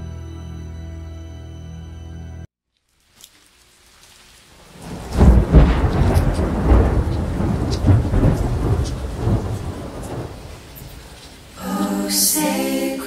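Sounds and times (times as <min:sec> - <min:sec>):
rolling thunder: 0:04.7 - 0:11.6.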